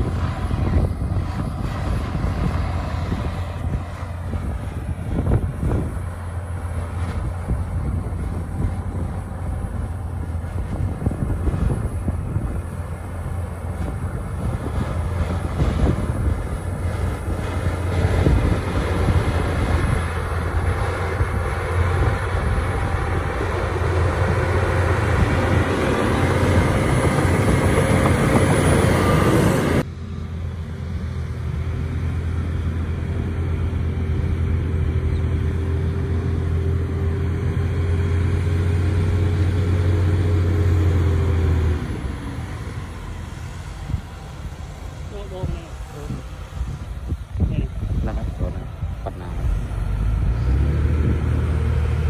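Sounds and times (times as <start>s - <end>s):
rattle of tracks and spoil: 0.0s - 29.8s
bulldozer diesel engine under load: 0.0s - 52.0s
thin steady whine: 40.6s - 50.4s.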